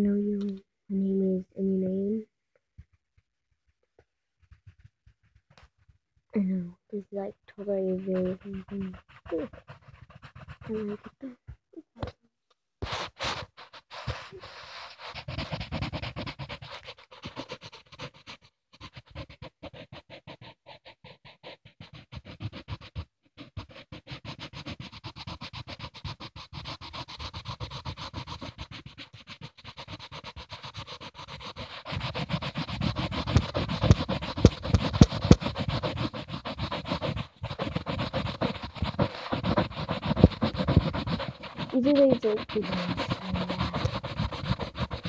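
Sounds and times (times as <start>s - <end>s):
crayon scratching on paper: 7.0s - 11.4s, 12.8s - 45.0s
heavier rubbing and bumps: 31.6s - 45.0s.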